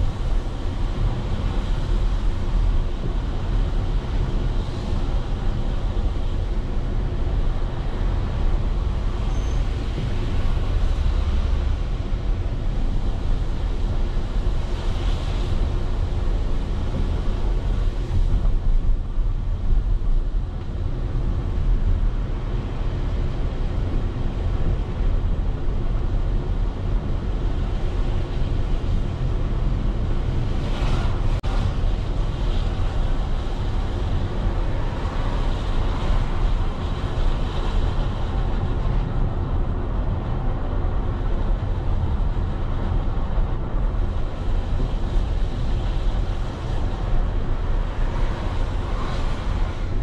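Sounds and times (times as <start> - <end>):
tyre and road noise: 0.0 - 50.0
vehicle engine rumble: 0.0 - 50.0
wind on microphone: 0.0 - 50.0.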